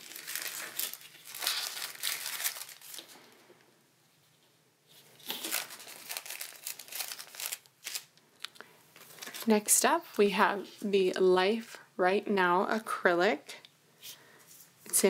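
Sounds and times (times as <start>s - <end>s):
plastic bag crinkling: 0.0s - 3.4s, 5.1s - 9.7s.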